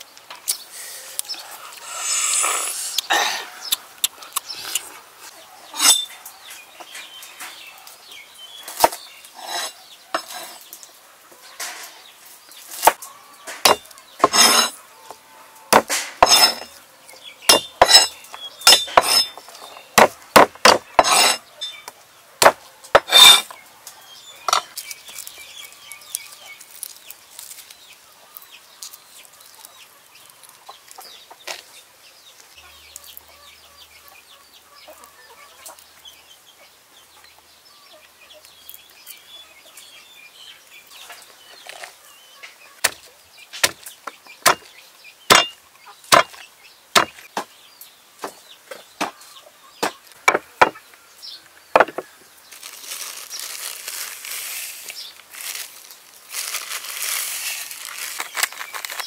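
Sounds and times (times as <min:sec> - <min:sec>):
knife chopping on wooden board: 0:13.6 - 0:14.7, 0:20.0 - 0:21.4, 0:44.4 - 0:44.7, 0:46.1 - 0:46.4
chickens clucking: 0:28.1 - 0:40.0, 0:40.6 - 0:59.0.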